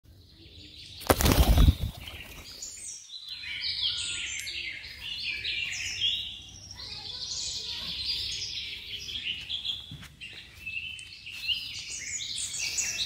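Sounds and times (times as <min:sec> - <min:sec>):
birds chirping: 0:00.1 - 0:13.0
pigeon wings flapping: 0:01.0 - 0:02.5.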